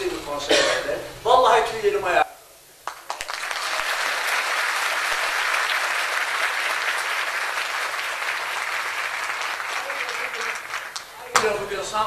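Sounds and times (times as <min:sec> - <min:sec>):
audience applauding: 0:02.8 - 0:11.4.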